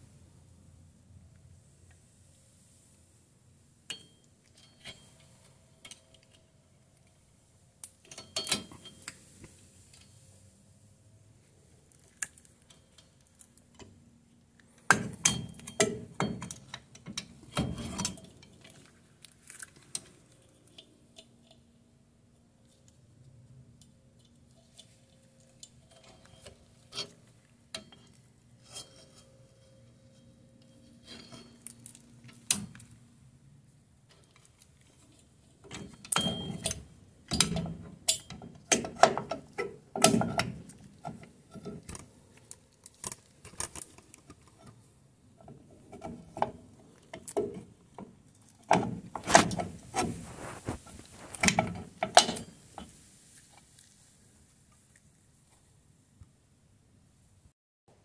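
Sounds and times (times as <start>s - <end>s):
metal tools clinking and knocking: 8.0s - 9.1s, 24.6s - 32.8s, 35.6s - 40.6s, 51.4s - 52.6s.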